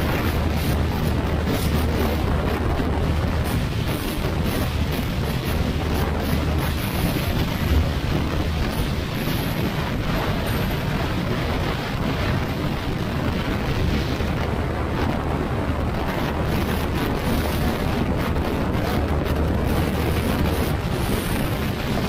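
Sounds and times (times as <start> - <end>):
wind rushing over microphone: 0.0 - 22.0.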